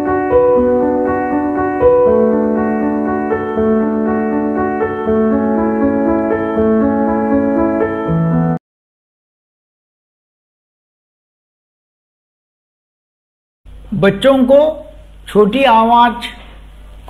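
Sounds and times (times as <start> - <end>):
slow keyboard chords: 0.0 - 8.6.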